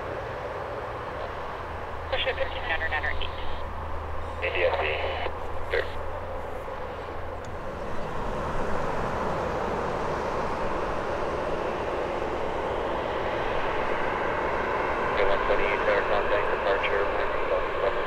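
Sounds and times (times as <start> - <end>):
jet engines humming: 0.0 - 18.0.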